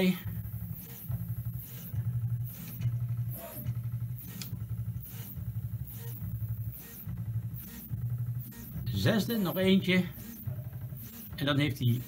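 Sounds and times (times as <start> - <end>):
stepper motors humming: 0.0 - 12.0.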